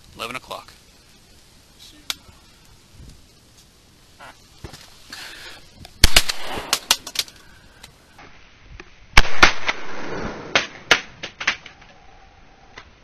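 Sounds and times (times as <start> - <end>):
faint sharp cracks: 5.8 - 8.0, 8.8 - 12.0
shotgun shots: 6.0 - 7.0, 9.2 - 11.1.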